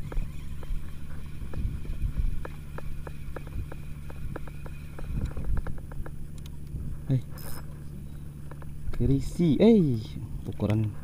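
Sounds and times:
fishing reel ticking: 0:00.0 - 0:06.4
boat engine humming: 0:00.0 - 0:11.0.

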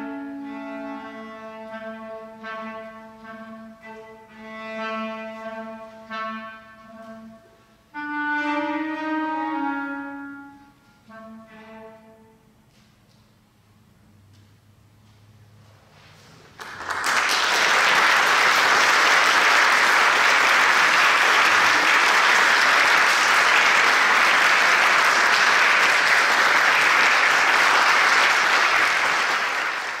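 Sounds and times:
audience applauding: 0:16.5 - 0:30.0.

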